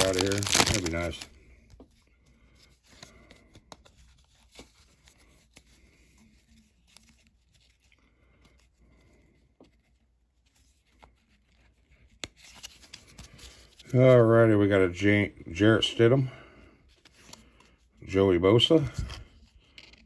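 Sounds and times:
card pack wrapper tearing: 0:00.0 - 0:01.3
cards being handled: 0:00.0 - 0:14.3, 0:16.8 - 0:20.0.

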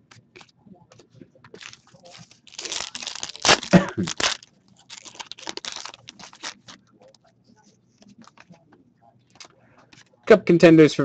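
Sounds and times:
foil pack tearing and crinkling: 0:01.6 - 0:06.8.

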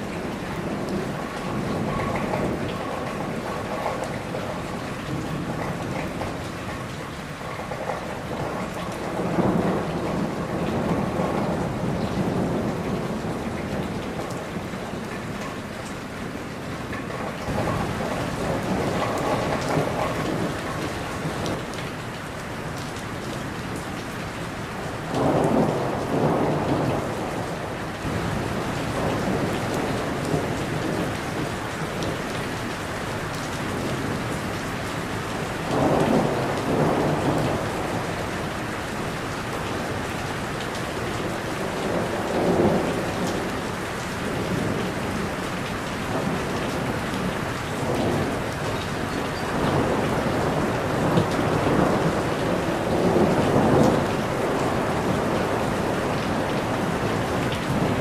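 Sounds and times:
rain on foliage: 0:00.0 - 0:58.0
rolling thunder: 0:25.0 - 0:32.7, 0:35.6 - 0:38.6, 0:44.2 - 0:58.0.

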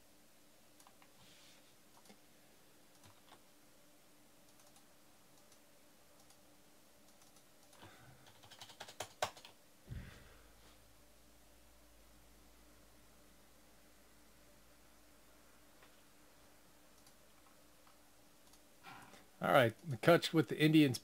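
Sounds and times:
keyboard and mouse clicking: 0:00.8 - 0:01.1, 0:01.9 - 0:02.2, 0:02.9 - 0:03.4, 0:04.4 - 0:05.6, 0:06.2 - 0:06.4, 0:07.0 - 0:09.6, 0:17.0 - 0:18.7.

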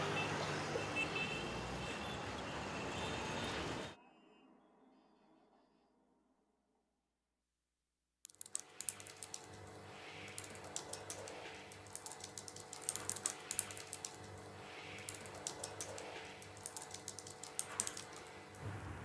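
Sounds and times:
typing on laptop keyboard: 0:08.3 - 0:18.6.

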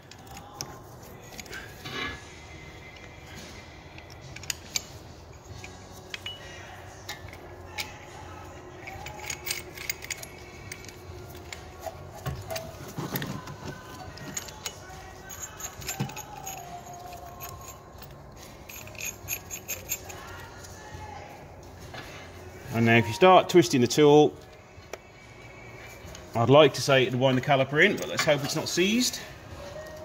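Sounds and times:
metal tools clicking and clinking: 0:00.0 - 0:02.2, 0:03.9 - 0:20.9, 0:27.2 - 0:30.0.

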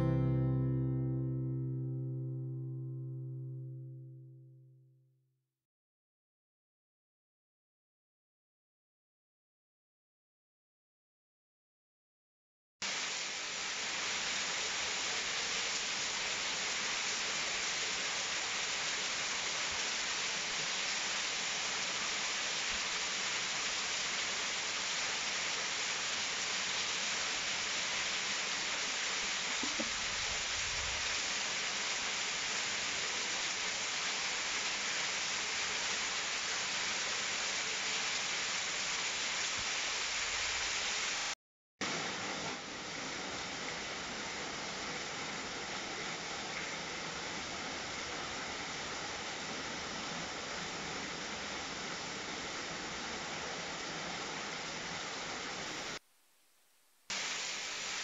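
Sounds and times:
waterfall splashing into pool: 0:12.8 - 0:56.0, 0:57.1 - 0:58.0.

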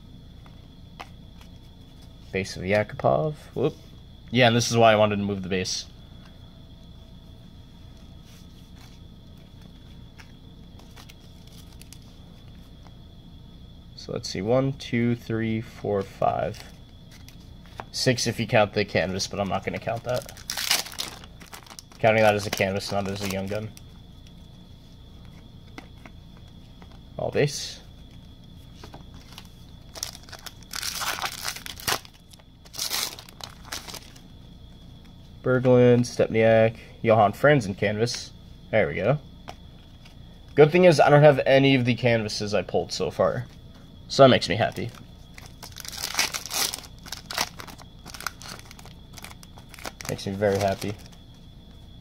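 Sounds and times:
faint hum: 0:00.0 - 0:52.0
trading cards clicking and rustling: 0:19.2 - 0:23.8, 0:28.8 - 0:34.2, 0:44.6 - 0:51.2
plastic wrapper tearing and crinkling: 0:20.1 - 0:23.5, 0:29.2 - 0:34.2, 0:45.4 - 0:51.1.

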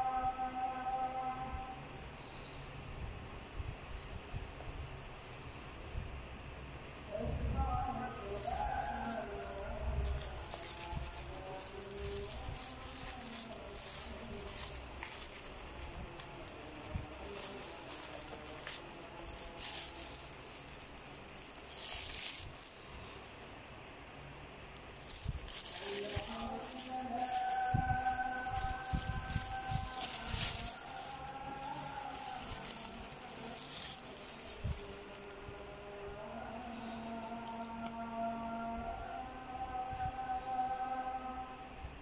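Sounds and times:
plastic wrapping crinkling: 0:08.1 - 0:23.7, 0:24.7 - 0:35.9, 0:37.4 - 0:38.0.

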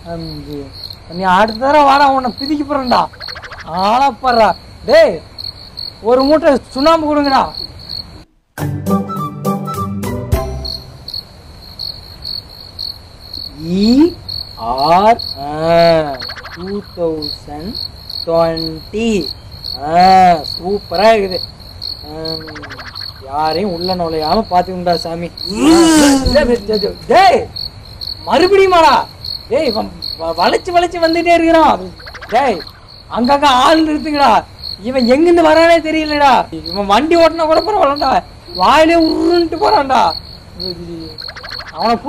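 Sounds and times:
crickets chirping: 0:00.0 - 0:08.5, 0:10.3 - 0:42.0
person making wordless vocal sounds: 0:25.4 - 0:26.8, 0:40.6 - 0:41.2.

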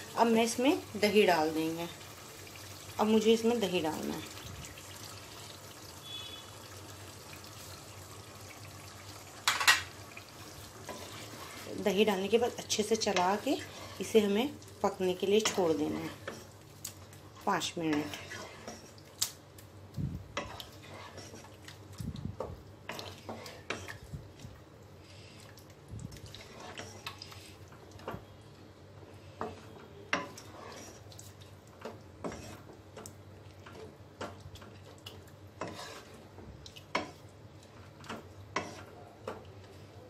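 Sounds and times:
wooden spatula scraping pot: 0:10.4 - 0:14.4, 0:15.2 - 0:16.6, 0:17.4 - 0:19.0, 0:20.3 - 0:21.6, 0:22.8 - 0:24.1, 0:26.3 - 0:28.2, 0:29.2 - 0:31.1, 0:31.8 - 0:32.8, 0:35.6 - 0:39.8.

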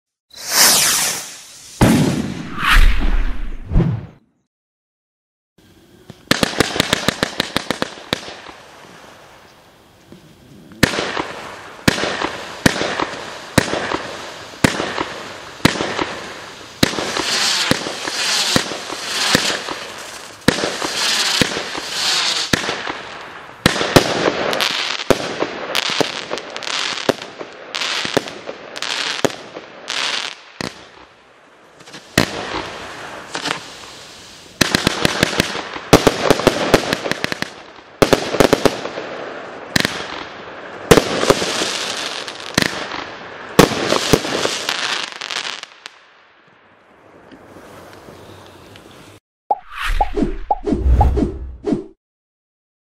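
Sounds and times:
hissing crackling firework bursts: 0:00.3 - 0:03.6, 0:05.6 - 0:46.0, 0:47.1 - 0:49.2
firework shots: 0:00.3 - 0:04.2, 0:06.1 - 0:08.6, 0:10.7 - 0:28.6, 0:31.8 - 0:45.6.

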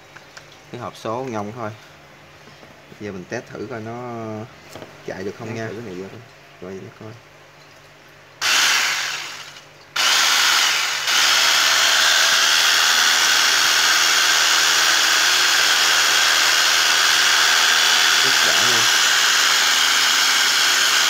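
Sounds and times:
cordless drill motor running: 0:08.4 - 0:21.0.

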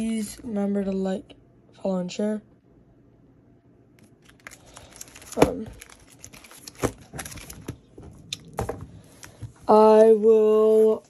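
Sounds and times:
plastic pages crinkling: 0:04.0 - 0:08.0.

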